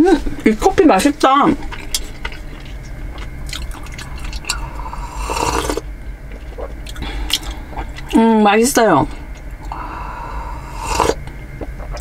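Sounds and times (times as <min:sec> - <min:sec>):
low steady hum: 0:00.0 - 0:12.0
person slurping coffee: 0:04.1 - 0:05.8, 0:10.4 - 0:11.2.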